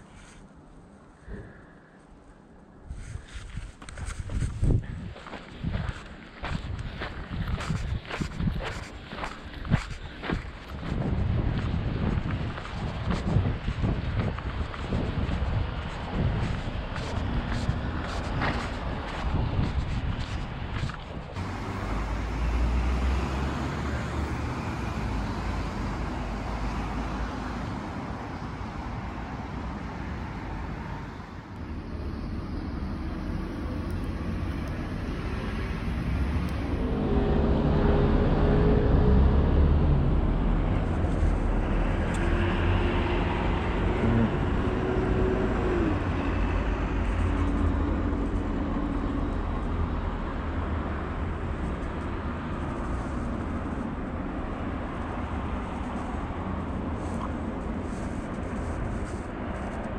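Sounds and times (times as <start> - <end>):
low rumble of cars: 0.0 - 59.9
vehicle humming engine passing: 9.2 - 59.9.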